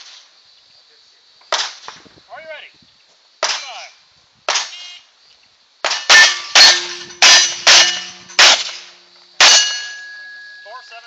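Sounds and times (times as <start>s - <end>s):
steel targets ringing: 5.9s - 11.0s.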